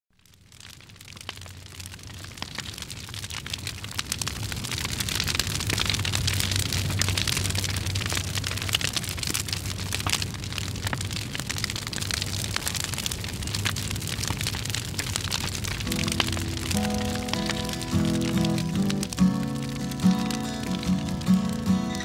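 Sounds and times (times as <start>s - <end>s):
dense crackling and pops: 0.1s - 22.0s.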